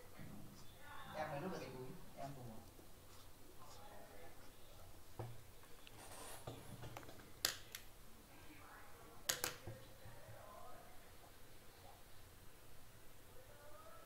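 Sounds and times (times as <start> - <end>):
faint room noise: 0.0 - 14.0.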